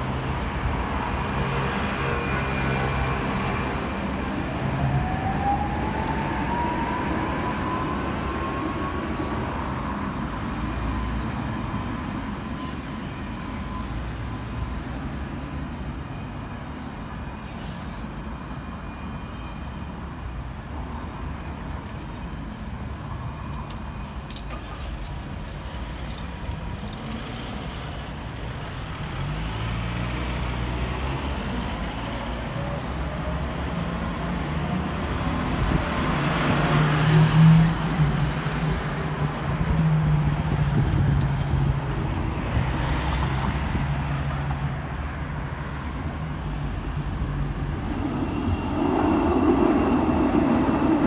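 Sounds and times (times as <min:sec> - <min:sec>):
vehicles driving past: 0:32.2 - 0:51.0.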